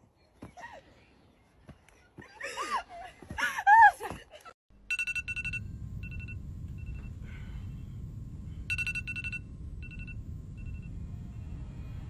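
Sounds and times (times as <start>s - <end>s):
low rumble: 4.8s - 12.0s
phone alarm beeping: 4.9s - 7.2s, 8.7s - 11.0s.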